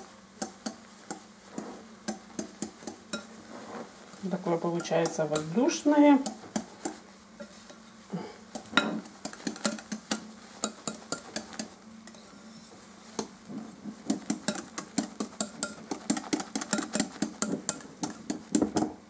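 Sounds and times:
whisk clicking against glass bowl: 0.0 - 3.3, 4.5 - 7.6, 8.5 - 11.8, 14.0 - 18.9.

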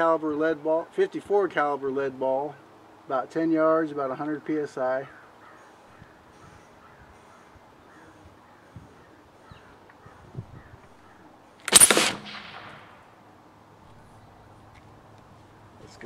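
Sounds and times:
compressed air gun blast: 11.6 - 13.1.

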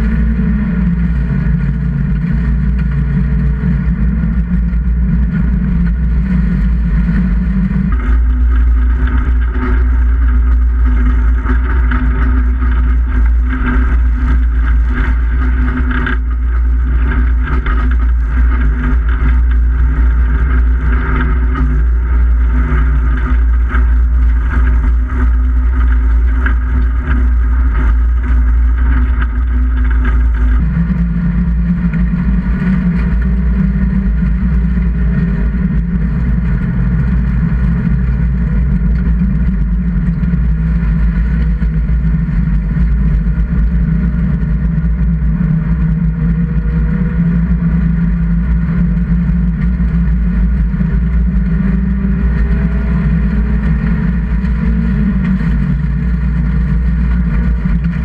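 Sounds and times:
race car engine running hard: 0.0 - 58.0.

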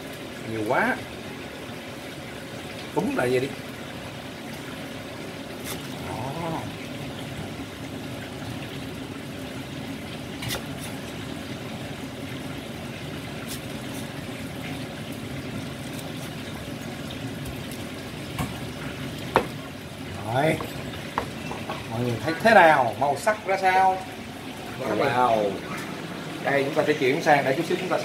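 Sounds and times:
steady hissing background noise: 0.0 - 28.0
knife knocking on cutting board: 19.3 - 19.6, 20.6 - 21.8.

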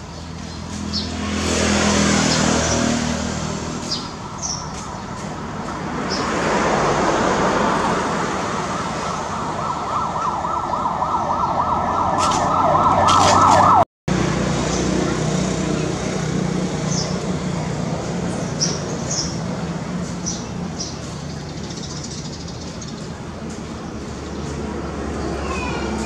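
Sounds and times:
traffic hum: 0.0 - 26.0
siren rising and falling: 6.8 - 13.8.

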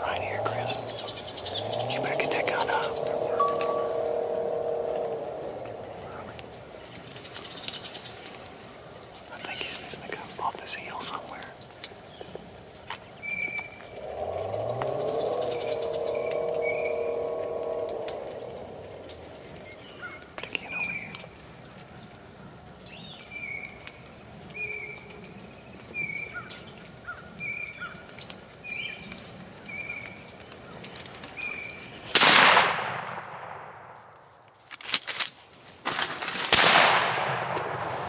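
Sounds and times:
bird chirping: 0.0 - 21.2
rifle shot with echo: 32.2 - 34.0, 36.5 - 38.0.

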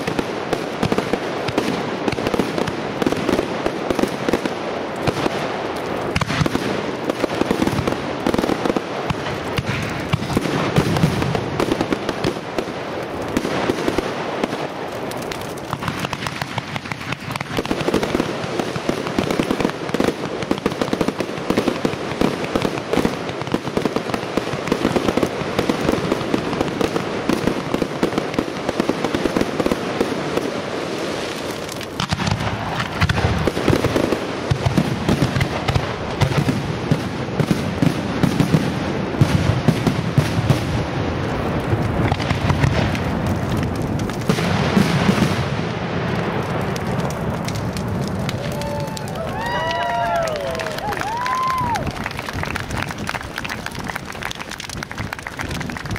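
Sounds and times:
firework crackling: 0.0 - 55.9
fireworks launching and bursting: 0.0 - 55.9.

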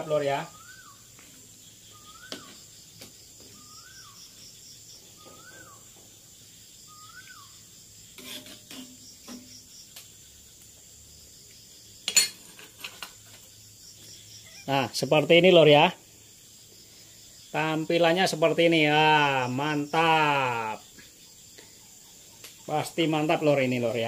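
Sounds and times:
faint insect chirping: 0.0 - 24.0
whistled call rising and falling: 0.3 - 1.0, 1.9 - 2.6, 3.5 - 4.2, 5.1 - 5.9, 6.9 - 7.6
metal spoon scraping a wok: 8.1 - 9.6, 12.1 - 13.4.

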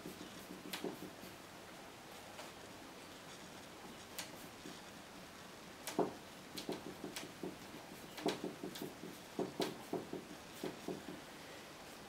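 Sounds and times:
soft taps of paint on canvas: 0.0 - 1.3.

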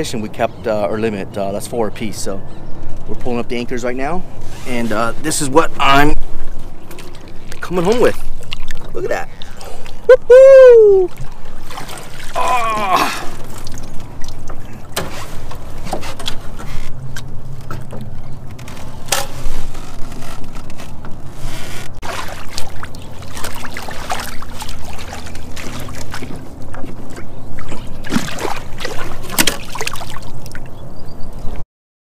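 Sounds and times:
water splashing and sloshing: 1.0 - 31.6
sharp splashes and knocks: 6.8 - 10.1, 11.0 - 30.8.

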